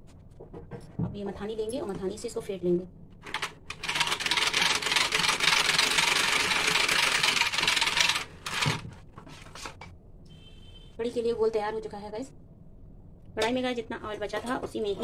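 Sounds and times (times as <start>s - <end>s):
electric hand mixer whisking: 3.8s - 8.8s.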